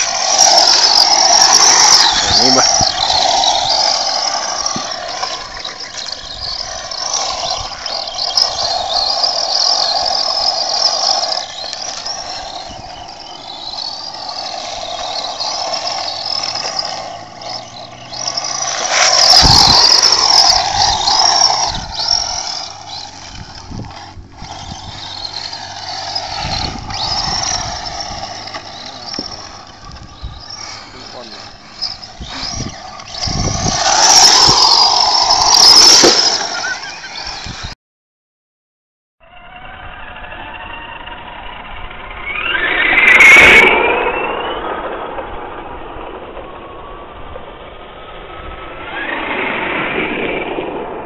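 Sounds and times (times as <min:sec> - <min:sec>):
tyres on gravel: 0:00.0 - 0:37.7
toy car motor whine: 0:00.0 - 0:37.8, 0:39.2 - 0:50.7.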